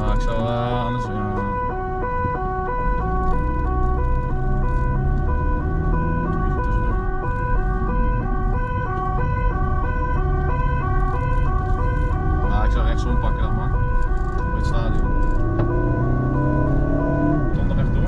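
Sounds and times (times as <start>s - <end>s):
engine and road rumble: 0.0s - 18.0s
two-tone police siren: 0.0s - 18.0s.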